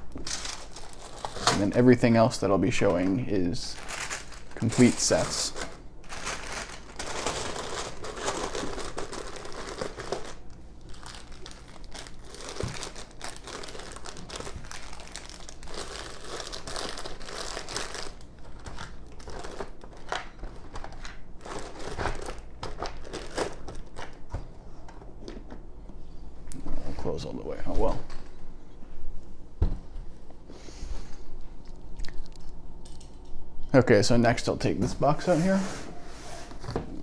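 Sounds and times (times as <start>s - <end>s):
plastic bags crinkling: 0.0s - 1.9s, 3.0s - 24.0s.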